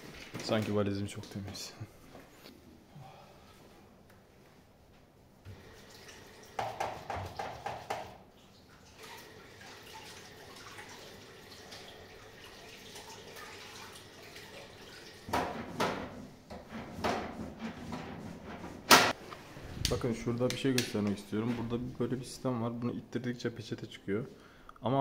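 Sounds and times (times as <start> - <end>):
tap water running into sink: 5.5 - 8.2
splashing while washing hands: 5.6 - 15.6.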